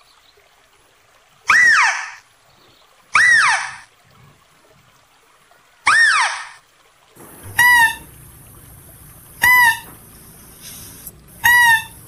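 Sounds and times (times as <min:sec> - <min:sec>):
mouse deer shrill cries: 0:01.5 - 0:02.2, 0:03.2 - 0:03.8, 0:05.9 - 0:06.5, 0:07.5 - 0:08.1, 0:11.4 - 0:12.0.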